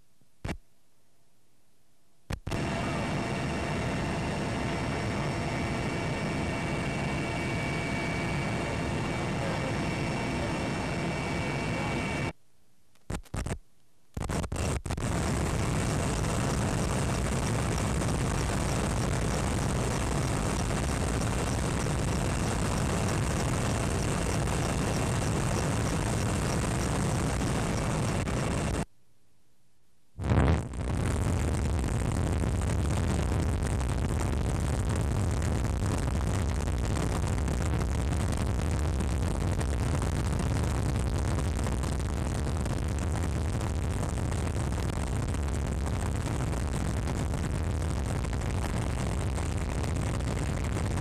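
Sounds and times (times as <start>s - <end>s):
helicopter engine and rotor whine: 2.5s - 12.3s, 26.6s - 28.8s.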